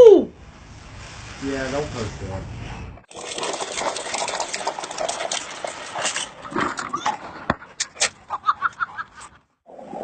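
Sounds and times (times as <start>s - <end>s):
plastic wheels rattling on asphalt: 3.1s - 7.6s.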